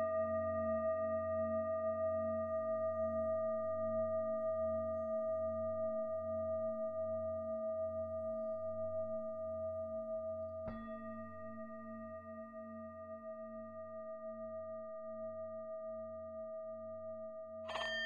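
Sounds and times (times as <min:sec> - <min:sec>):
singing bowl ringing: 0:17.7 - 0:18.0.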